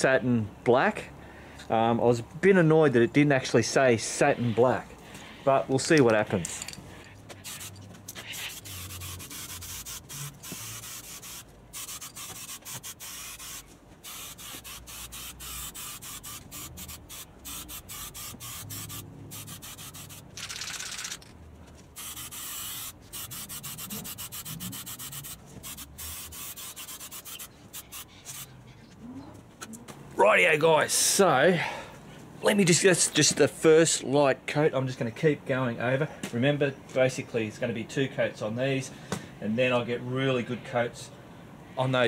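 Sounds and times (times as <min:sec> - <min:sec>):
aerosol spray can hissing: 0:07.4 - 0:20.9, 0:22.0 - 0:28.5.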